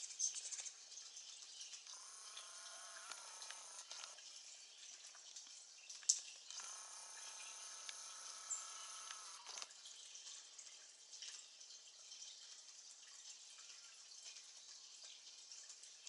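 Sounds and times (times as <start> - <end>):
soft ticks and drips: 0.0 - 16.0
camcorder zoom motor whirring: 1.9 - 4.2, 6.5 - 9.7.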